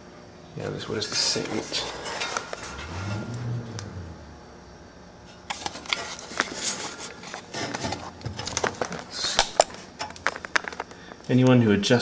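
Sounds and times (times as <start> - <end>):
paper tag rustling and crackling: 5.5 - 11.1.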